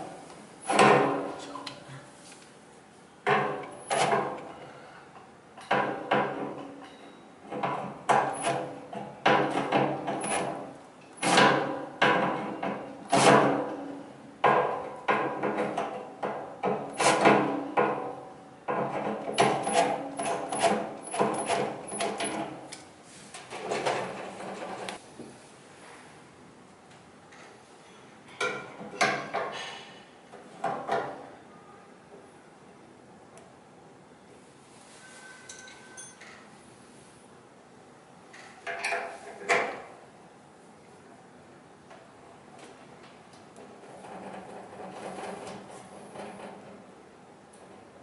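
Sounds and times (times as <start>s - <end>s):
metal clanks and ringing: 35.0s - 36.4s.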